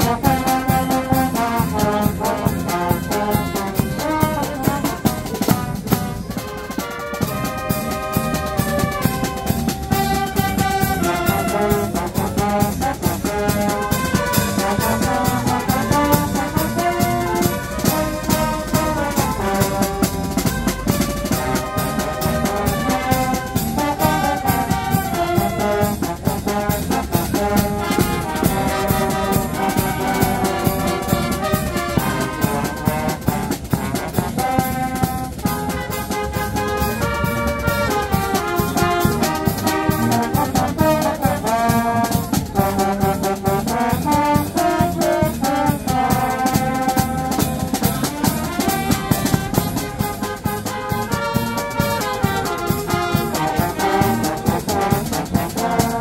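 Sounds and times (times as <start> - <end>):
steady drum beat: 0.0 - 56.0
trumpets and trombones melody: 0.0 - 56.0.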